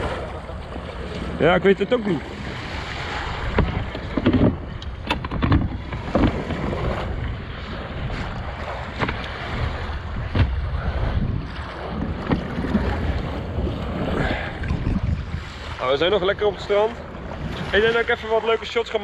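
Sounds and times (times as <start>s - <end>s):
small waves lapping against hull: 0.0s - 19.0s
wind on the microphone: 2.4s - 18.2s
hand knocking on hull: 3.4s - 6.6s.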